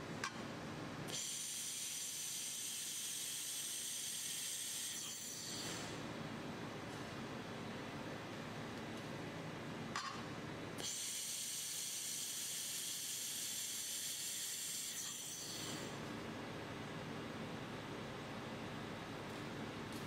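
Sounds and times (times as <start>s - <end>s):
laser welding hiss: 1.1s - 5.9s, 10.8s - 15.9s.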